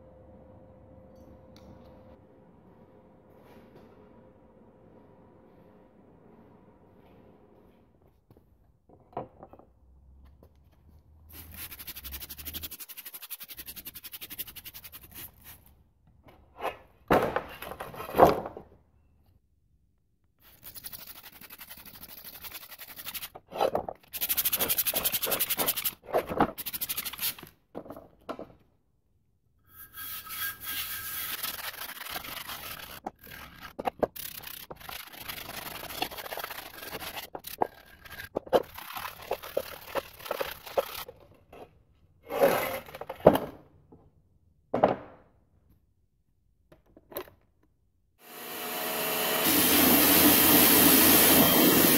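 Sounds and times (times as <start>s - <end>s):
brushes scrubbing metal wheel: 11.3s - 15.5s, 29.8s - 41.0s.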